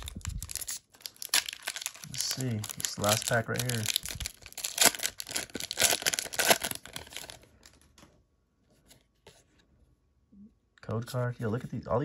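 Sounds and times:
foil wrapper tearing and crinkling: 0:00.0 - 0:07.7.

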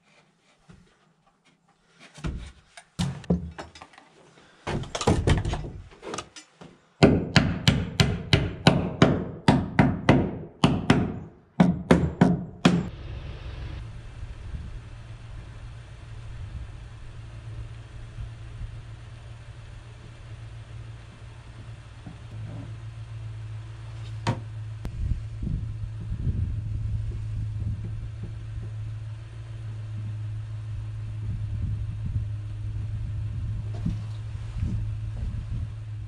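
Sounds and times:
hammer driving nails into wood: 0:07.0 - 0:12.9
low machine hum: 0:12.6 - 0:36.0.

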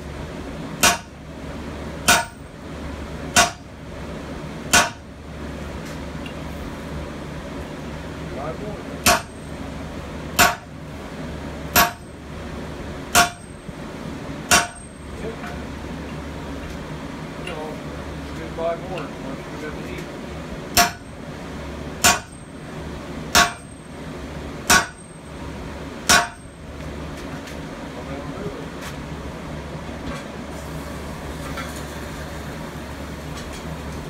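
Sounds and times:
steady low hum: 0:00.0 - 0:34.0
sledgehammer hitting steel on anvil: 0:00.8 - 0:01.2, 0:02.0 - 0:02.5, 0:03.3 - 0:03.7, 0:04.7 - 0:05.1, 0:09.0 - 0:09.4, 0:10.4 - 0:10.7, 0:11.7 - 0:12.1, 0:13.1 - 0:13.6, 0:14.5 - 0:15.0, 0:20.7 - 0:21.1, 0:22.0 - 0:22.4, 0:23.3 - 0:23.8, 0:24.6 - 0:25.2, 0:26.0 - 0:26.5.

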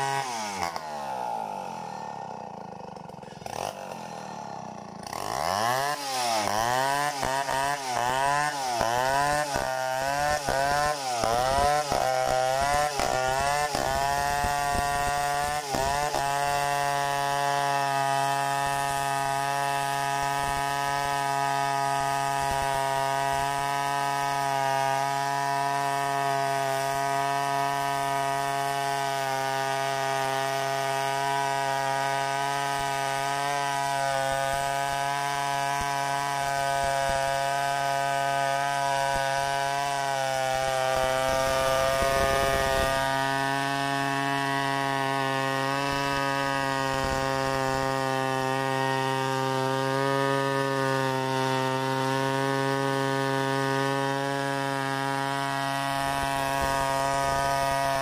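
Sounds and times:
chainsaw cutting a log: 0:00.0 - 0:58.0.

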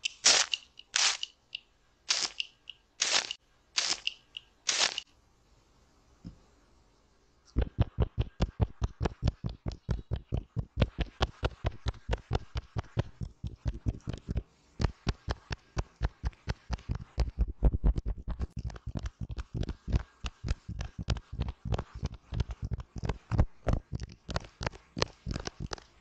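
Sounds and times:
fingertips tapping on soft mat: 0:07.6 - 0:26.0.

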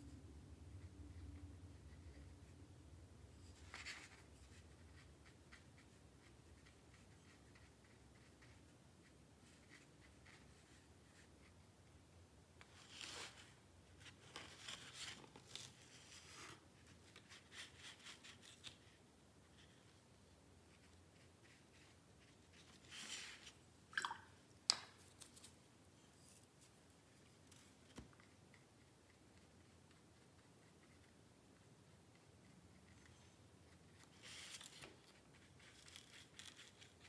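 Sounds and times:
quiet room hum: 0:00.0 - 0:37.0
brush strokes on paper: 0:03.3 - 0:11.6, 0:20.7 - 0:23.6.

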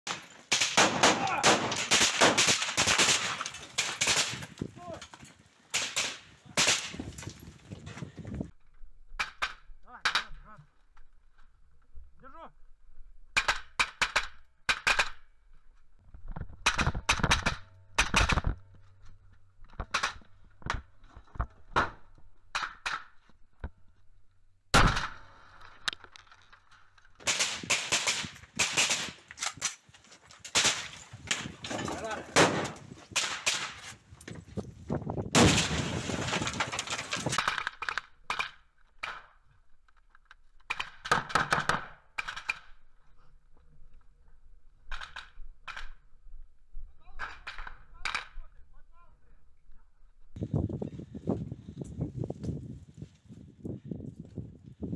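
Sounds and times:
rifle gunfire: 0:00.5 - 0:04.4, 0:32.3 - 0:33.8.

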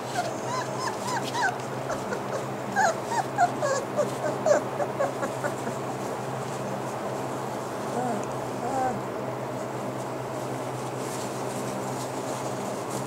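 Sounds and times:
puppies whimpering: 0:00.0 - 0:06.0, 0:07.9 - 0:09.0.

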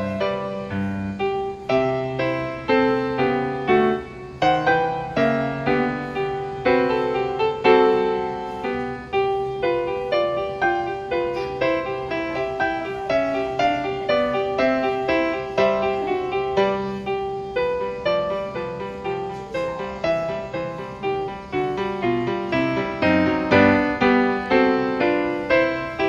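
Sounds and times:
gentle piano music: 0:00.0 - 0:26.0.

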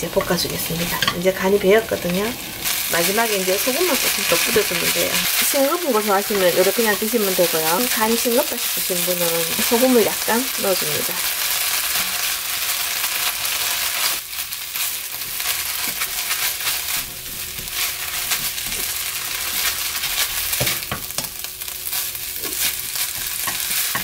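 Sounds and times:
greens sizzling in frying pan: 0:00.0 - 0:24.0
spatula scraping pan: 0:15.2 - 0:21.2, 0:21.9 - 0:24.0.

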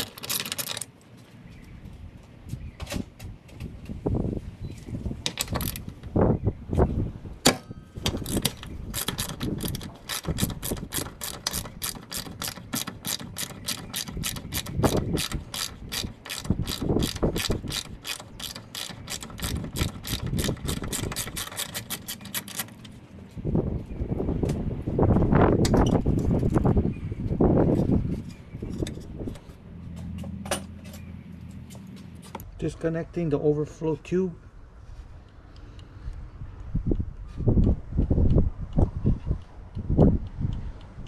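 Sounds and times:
socket ratchet clicking: 0:00.0 - 0:00.9, 0:08.0 - 0:22.8.

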